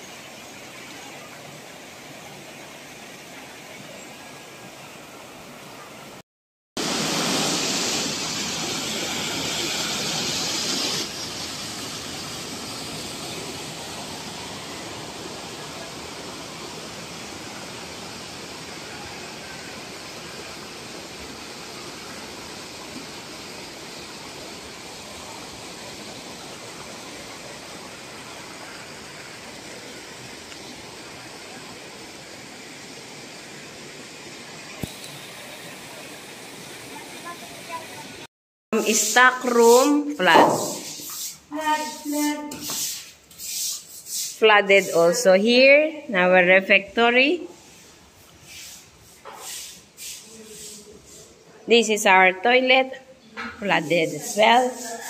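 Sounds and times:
water rushing over rocks: 6.8s - 38.3s.

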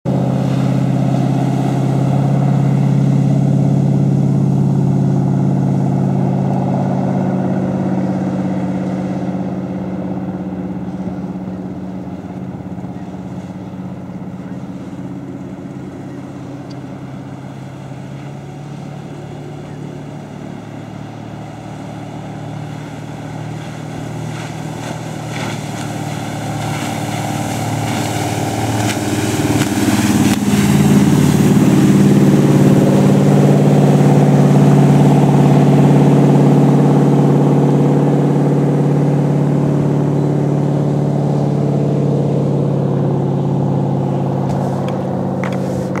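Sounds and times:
boat engine running at speed: 0.0s - 46.0s
spray hissing off hull: 21.0s - 34.2s.

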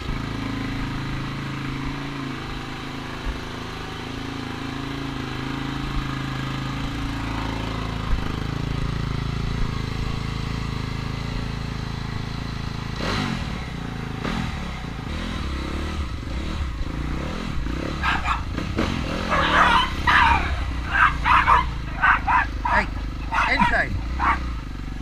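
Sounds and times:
dirt bike engine idling and revving: 0.0s - 25.0s
dogs barking: 17.9s - 24.7s.

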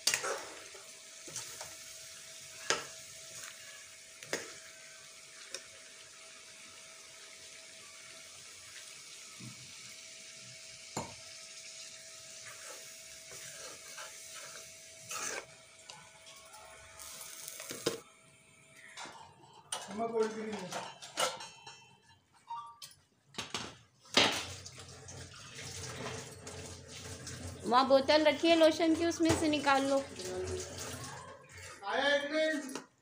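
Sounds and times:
curry sizzling in a frying pan: 0.0s - 18.0s.

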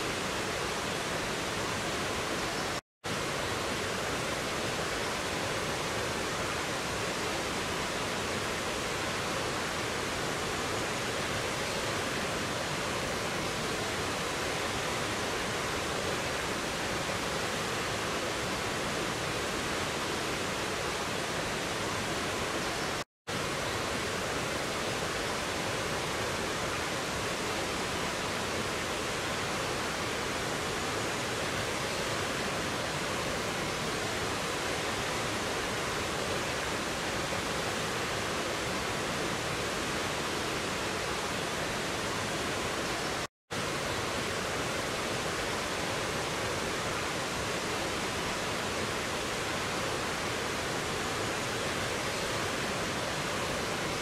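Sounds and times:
stream rushing over rocks: 0.0s - 54.0s.

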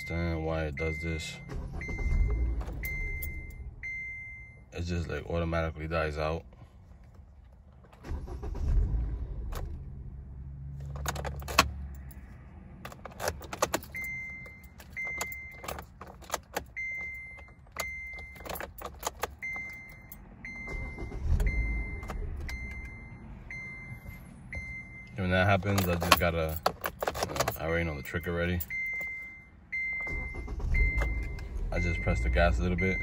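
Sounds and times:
car engine starting and stalling: 1.0s - 4.1s, 7.6s - 29.2s, 29.8s - 33.0s
engine cranking: 1.4s - 3.5s, 7.8s - 9.9s, 12.9s - 23.0s, 29.9s - 33.0s.

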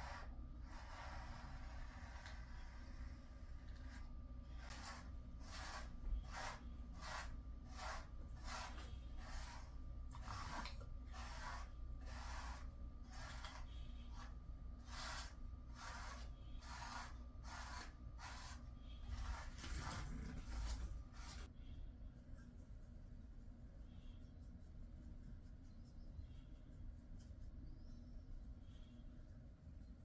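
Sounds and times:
brush raking through dog fur: 0.0s - 21.5s.

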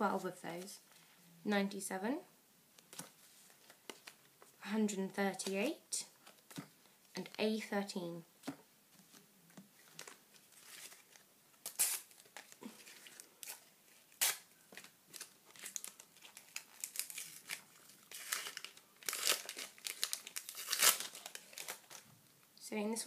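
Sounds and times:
wrapper crinkling and tearing: 9.9s - 22.1s.

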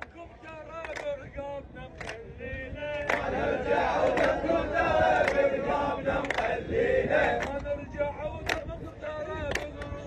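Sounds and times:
crowd of men chanting: 2.0s - 10.0s.

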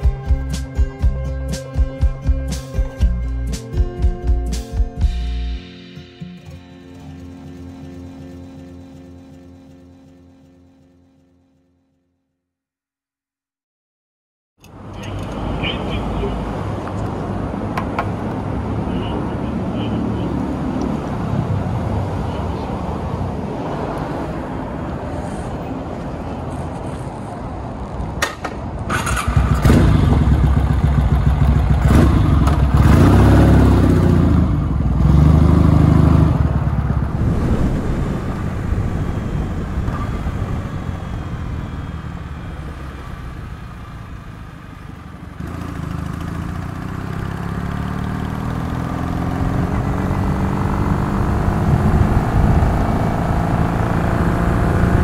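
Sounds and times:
motorcycle engine revving: 28.9s - 55.0s.

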